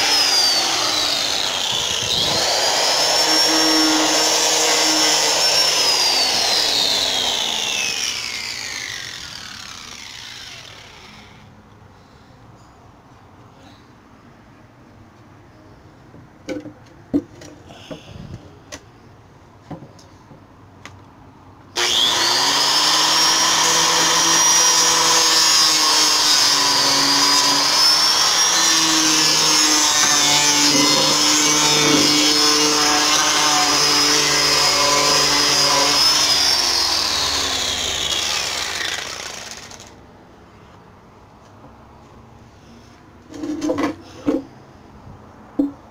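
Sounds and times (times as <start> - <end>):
power drill whining: 0.0 - 11.5, 21.8 - 40.0.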